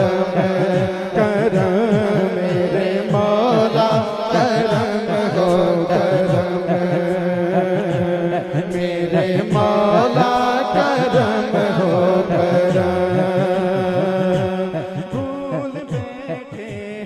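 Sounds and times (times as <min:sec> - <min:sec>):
man singing chant-like: 0:00.0 - 0:17.0.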